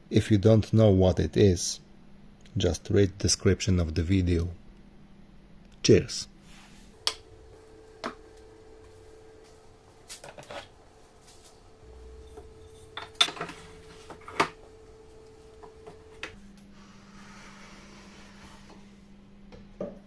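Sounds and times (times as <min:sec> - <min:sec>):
faint steady hum: 0:04.4 - 0:19.8
wooden tools knocking on workbench: 0:12.3 - 0:16.2.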